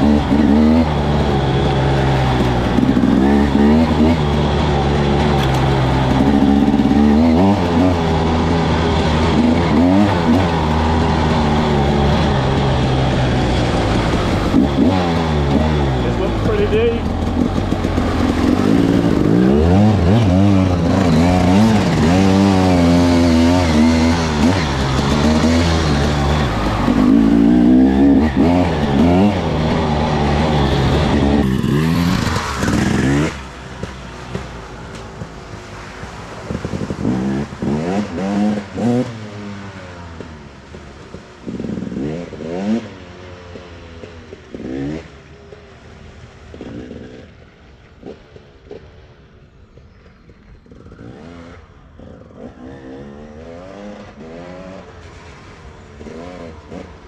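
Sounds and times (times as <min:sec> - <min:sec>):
two-stroke engine revving: 0:00.0 - 0:45.2.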